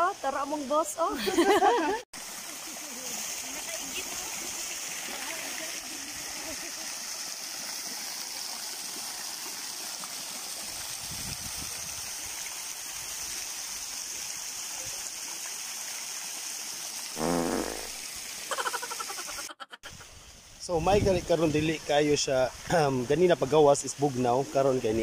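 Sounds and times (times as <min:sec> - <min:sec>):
fountain water splashing: 0:00.0 - 0:25.0
brief pitched sound: 0:17.2 - 0:18.0.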